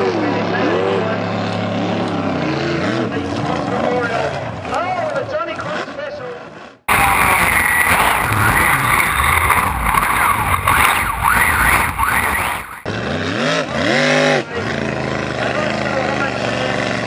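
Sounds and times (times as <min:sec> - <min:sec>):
race boat engine passing: 0:06.9 - 0:12.8
powerboat engine: 0:06.9 - 0:12.9.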